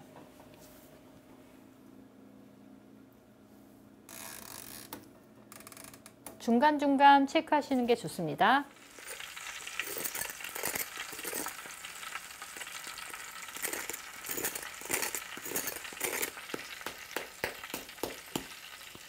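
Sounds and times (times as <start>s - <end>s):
pork sizzling and popping: 8.7s - 19.0s.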